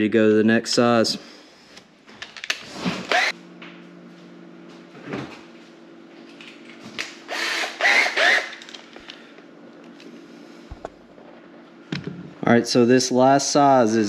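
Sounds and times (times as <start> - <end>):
power drill motor whining: 3.0 - 3.4, 7.3 - 8.8.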